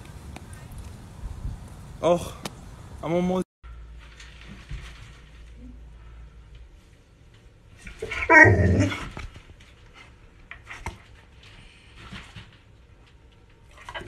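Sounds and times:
faint clicks and rustles: 0:00.0 - 0:02.6, 0:03.7 - 0:08.3, 0:08.9 - 0:14.0
dog barking whine: 0:08.0 - 0:09.1.

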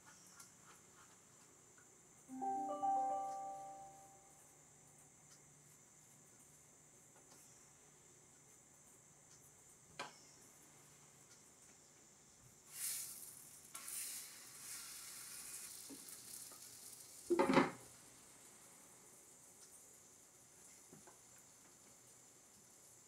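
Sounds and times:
dough sizzling in frying pan: 0:10.4 - 0:23.0.

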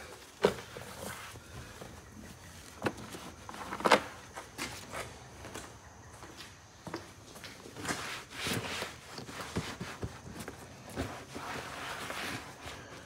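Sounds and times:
cloth rubbing on plastic: 0:07.8 - 0:13.0.

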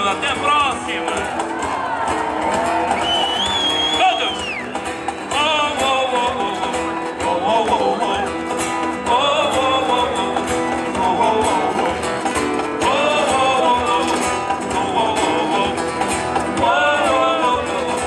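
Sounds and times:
man singing: 0:00.0 - 0:01.4, 0:05.2 - 0:18.0
acoustic guitar: 0:00.0 - 0:18.0.

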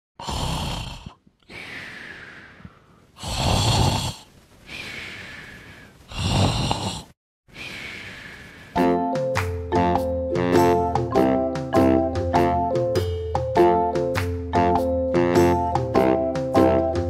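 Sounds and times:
person snoring: 0:00.2 - 0:09.0
light music: 0:08.8 - 0:17.0.

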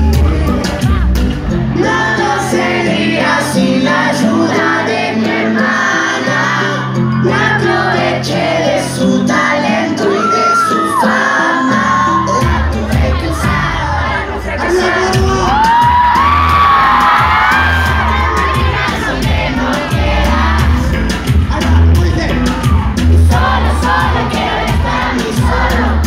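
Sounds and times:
live pop song over pa: 0:00.0 - 0:26.0
audience shouting: 0:10.0 - 0:20.9.

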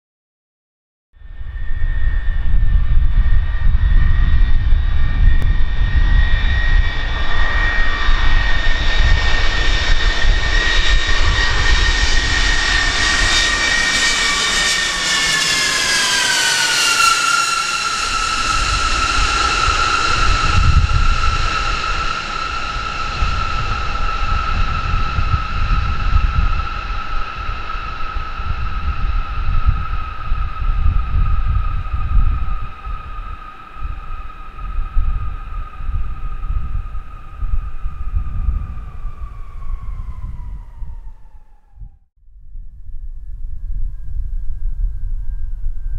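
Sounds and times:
jet engines whining overhead: 0:01.2 - 0:42.0.

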